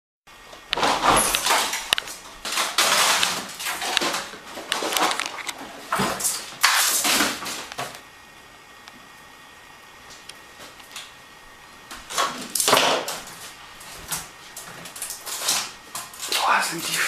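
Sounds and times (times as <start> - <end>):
rustling and clattering bursts: 0.6 - 8.0.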